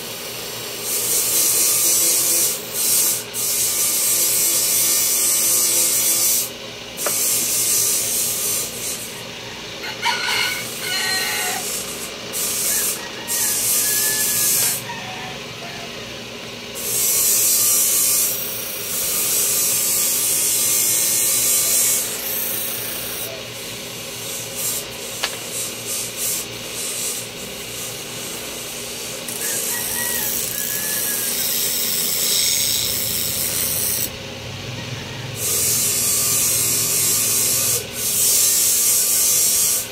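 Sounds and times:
rooster crowing: 9.4s - 11.8s, 12.5s - 16.2s, 29.4s - 31.6s, 34.6s - 35.8s.

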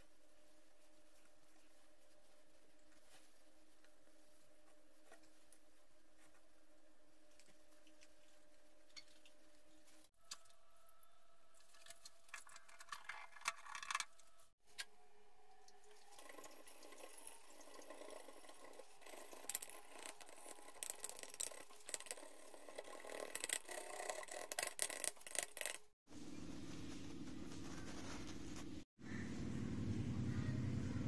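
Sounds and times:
steady low hum: 26.1s - 31.0s.

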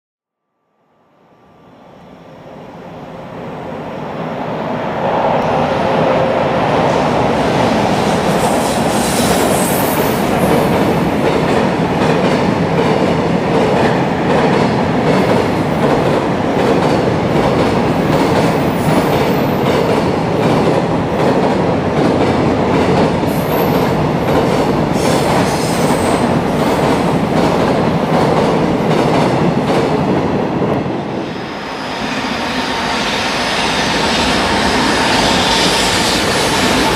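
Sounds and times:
freight train rumbling: 2.2s - 36.9s.

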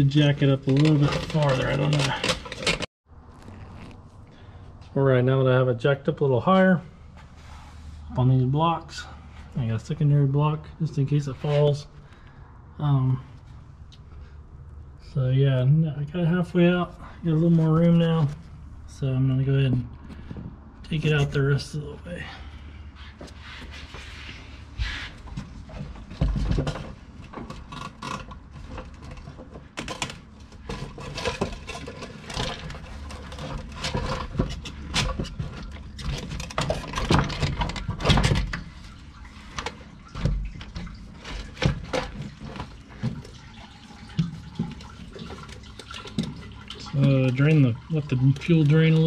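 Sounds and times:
fuel sloshing and dripping: 10.6s - 15.1s, 19.8s - 21.1s, 22.0s - 49.0s.

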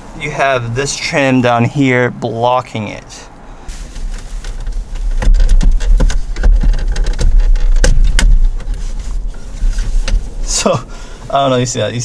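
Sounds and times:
steady low rumble: 3.6s - 12.0s
plastic trim clicks and knocks: 4.5s - 8.7s.

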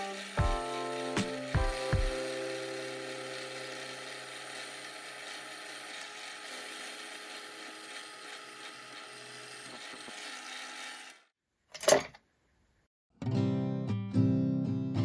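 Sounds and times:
tool scratching wood: 3.3s - 11.2s.

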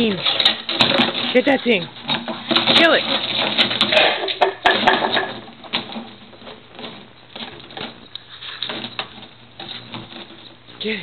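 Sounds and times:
tube rattling and scraping: 0.0s - 11.0s.

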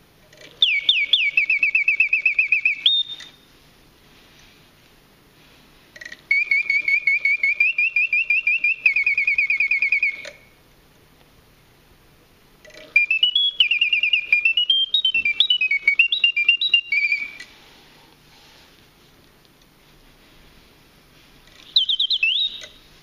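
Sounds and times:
mechanical bird whistling: 0.6s - 3.4s, 6.0s - 10.6s, 12.6s - 17.6s, 21.5s - 22.8s.

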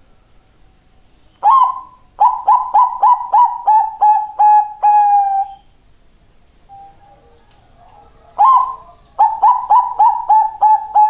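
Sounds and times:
dove cooing: 1.4s - 5.6s, 6.7s - 11.0s.

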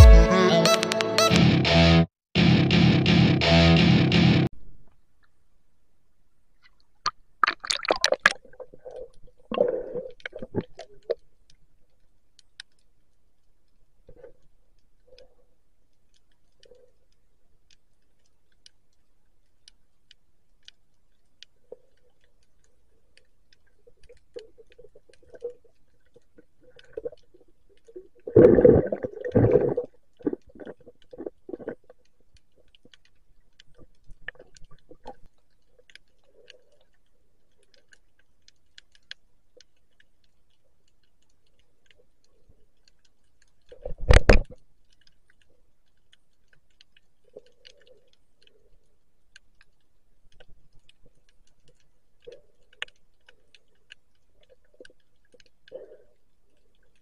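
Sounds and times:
underwater gurgling: 7.0s - 11.6s, 21.5s - 57.0s
faint clicks: 10.0s - 28.3s, 29.3s - 57.0s.

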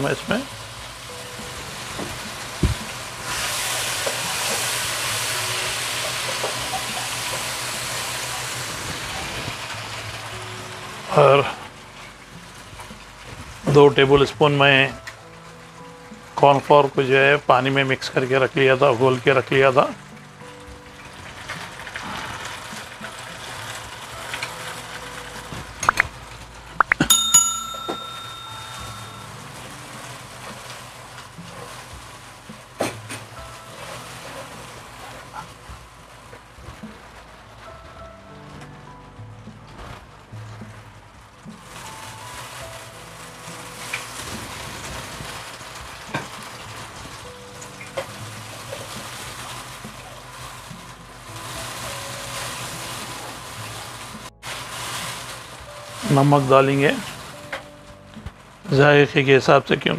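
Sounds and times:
sauce sizzling in a wok: 0.0s - 26.8s, 28.5s - 37.8s, 41.0s - 58.7s
sauce bubbling: 0.3s - 13.7s
bright bell ding: 26.9s - 29.6s.

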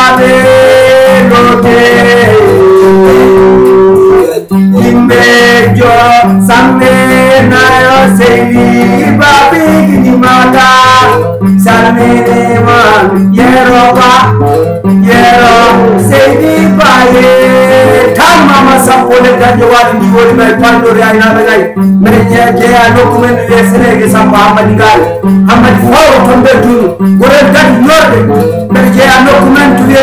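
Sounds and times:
acoustic guitar: 0.0s - 30.0s
man singing: 0.0s - 30.0s.

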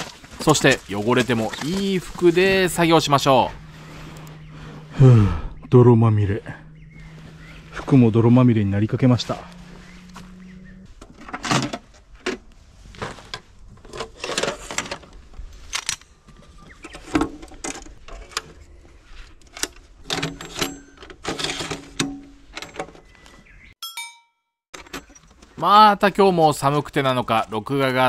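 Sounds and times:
bag rustling: 0.0s - 4.8s
metal legs clicking and clinking: 19.4s - 23.0s.

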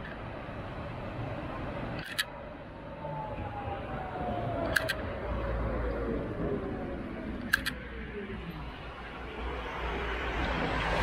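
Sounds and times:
tram low rumble: 0.0s - 11.0s
sharp double clicks: 4.6s - 5.0s, 7.4s - 7.8s.

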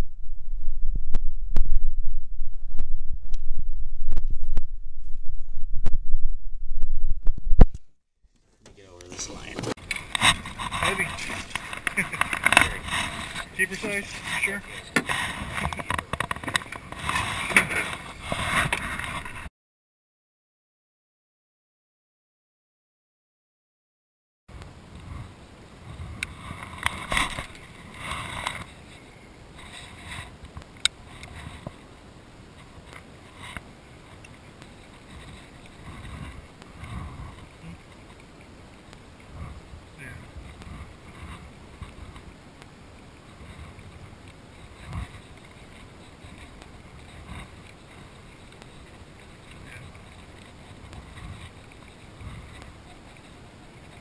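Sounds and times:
wind: 0.0s - 19.5s, 24.5s - 54.0s
water around boat: 8.3s - 19.5s, 24.5s - 54.0s.

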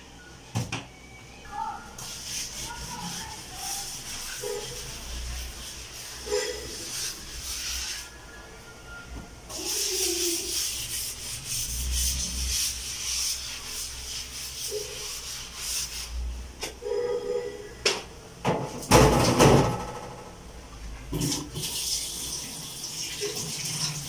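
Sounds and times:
scouring pad scrubbing countertop: 1.9s - 8.2s, 9.5s - 16.2s.

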